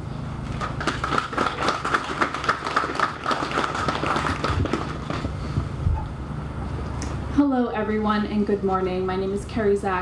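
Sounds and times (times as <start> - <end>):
audience clapping: 0.5 - 5.4.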